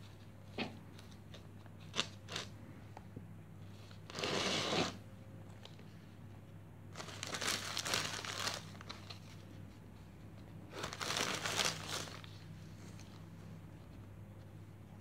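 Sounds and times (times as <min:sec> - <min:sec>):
dry moss crinkling rustle: 0:07.0 - 0:09.6.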